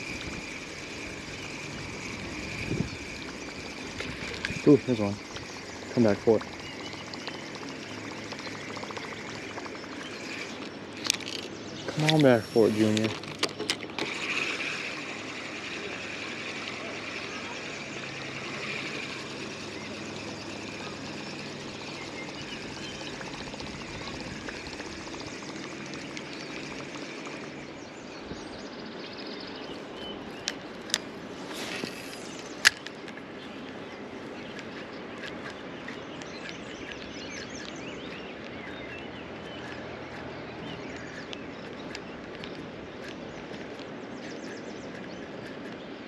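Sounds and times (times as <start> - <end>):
fishing reel clicks: 0.0 - 27.8
birds calling: 0.0 - 46.0.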